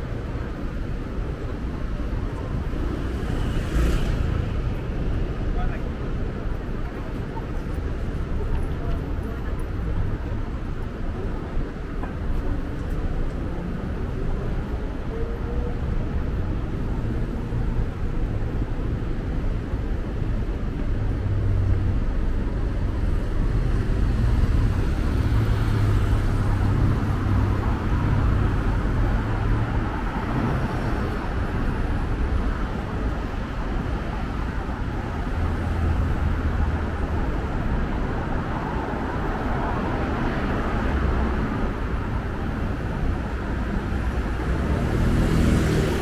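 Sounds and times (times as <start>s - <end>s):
road traffic rumble: 0.0s - 46.0s.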